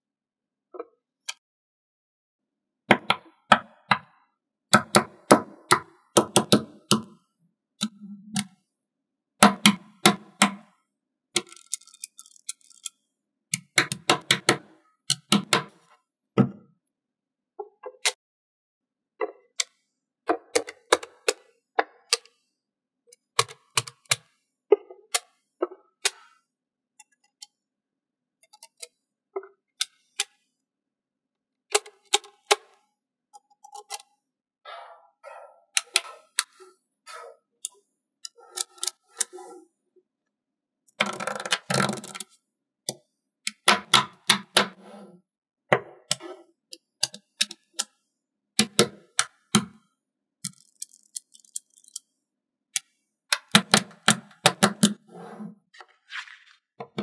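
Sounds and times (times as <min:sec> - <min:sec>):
magnet balls clicking together: 0:11.4 - 0:13.0, 0:50.4 - 0:52.1.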